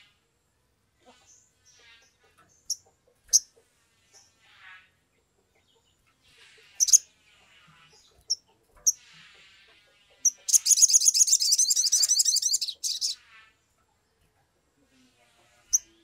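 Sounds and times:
bird chirping and trilling: 0:06.6 - 0:09.2, 0:10.1 - 0:13.3.

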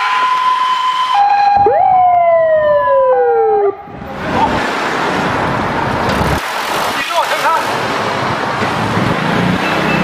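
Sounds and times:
two-tone siren: 0:00.0 - 0:04.0
wailing siren: 0:00.0 - 0:04.1
wind and road noise: 0:00.0 - 0:10.0.

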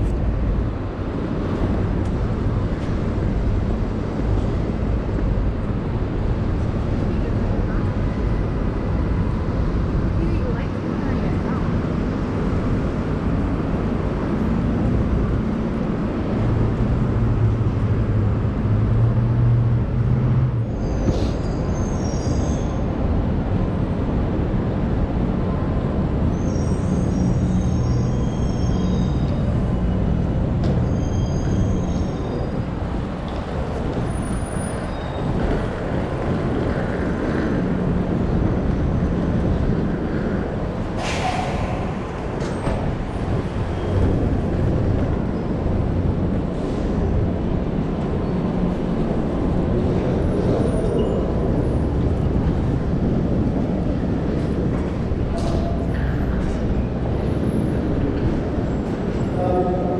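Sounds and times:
vehicle engines rumbling: 0:00.0 - 0:59.9.

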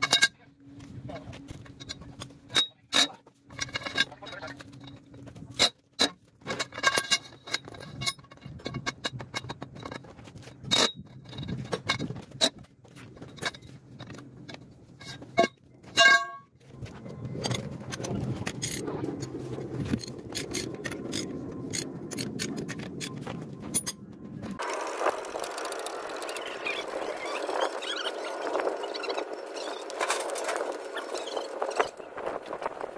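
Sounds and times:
wrench clanking on wheel nuts: 0:01.6 - 0:12.6, 0:13.2 - 0:16.4.

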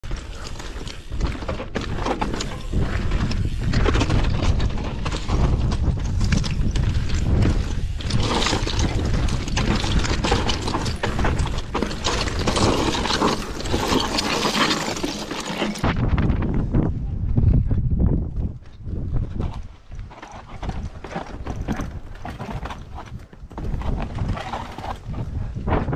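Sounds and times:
wind rumble on microphone: 0:00.0 - 0:14.2, 0:15.8 - 0:25.9
bike frame and chain clattering: 0:00.0 - 0:15.8
tyres crunching on loose rock: 0:00.0 - 0:16.6, 0:18.9 - 0:25.6.

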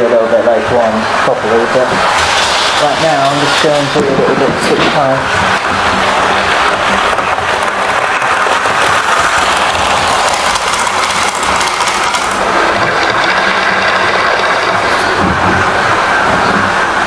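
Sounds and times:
model train motor whirring: 0:05.5 - 0:15.8.

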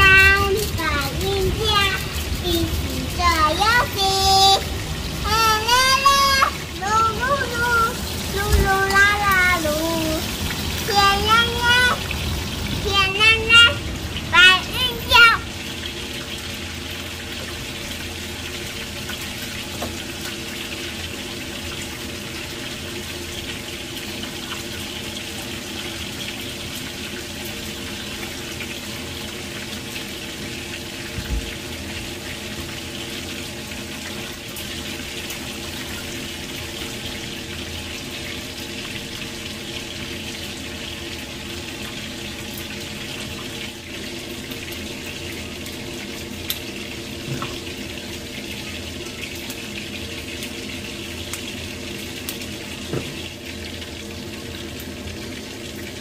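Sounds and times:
tap running into sink: 0:19.7 - 0:20.0, 0:31.0 - 0:31.6, 0:46.5 - 0:47.7, 0:52.3 - 0:53.3.

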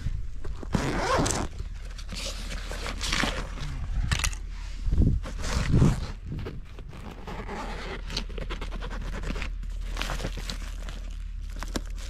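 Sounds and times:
fabric handling: 0:00.5 - 0:03.7
bag zippers opening and closing: 0:00.6 - 0:01.6, 0:05.2 - 0:09.4.

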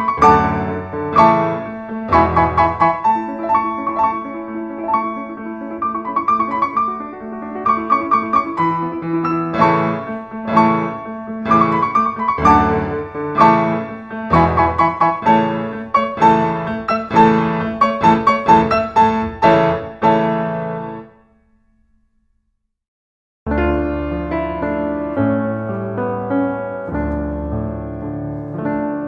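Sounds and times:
piano music: 0:00.0 - 0:22.0, 0:23.5 - 0:29.0.

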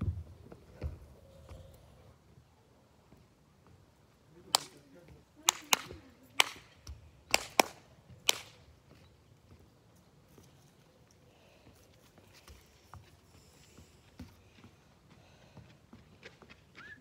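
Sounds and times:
sharp hand claps: 0:04.5 - 0:04.8, 0:05.5 - 0:06.7, 0:07.3 - 0:08.6.

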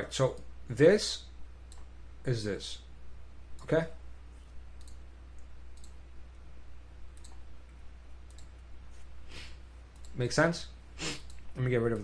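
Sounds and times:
low electrical hum: 0:00.0 - 0:12.0
computer mouse clicking: 0:01.7 - 0:01.9, 0:04.4 - 0:06.0, 0:07.1 - 0:08.7, 0:09.9 - 0:10.3.

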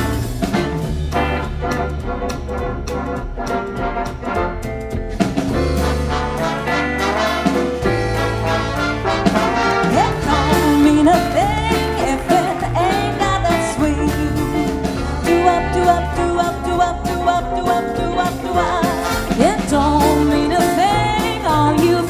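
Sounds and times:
big band playing swing: 0:00.0 - 0:22.0
brass slides: 0:05.5 - 0:11.2.

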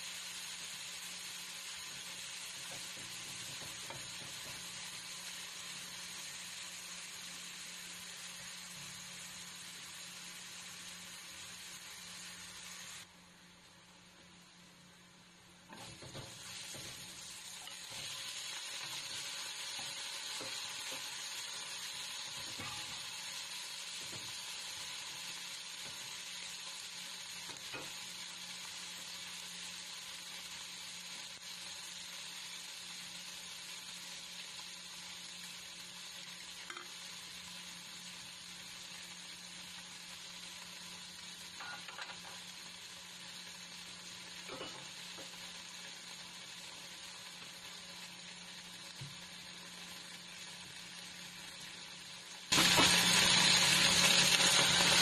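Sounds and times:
vegetables sizzling in hot oil: 0:00.0 - 0:55.0
spatula scraping and tapping pan: 0:01.9 - 0:04.8, 0:15.7 - 0:18.2, 0:22.4 - 0:23.0, 0:36.6 - 0:36.9, 0:41.6 - 0:42.4, 0:44.4 - 0:45.4.

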